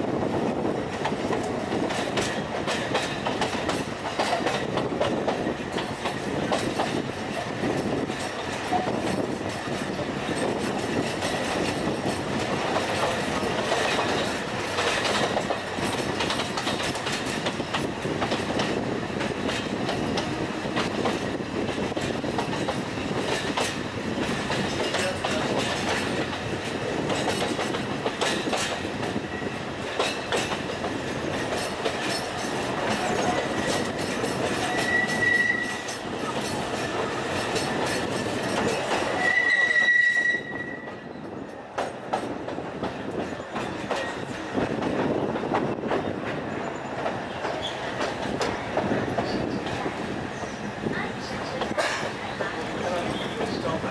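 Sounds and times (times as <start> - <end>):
train rumbling on rails: 0.0 - 53.9
high metallic squeals: 34.6 - 36.0, 39.1 - 41.1.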